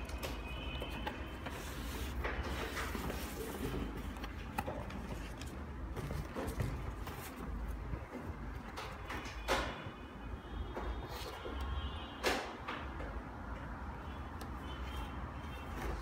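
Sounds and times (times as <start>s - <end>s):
hands rustling sneakers and box: 0.2s - 8.3s.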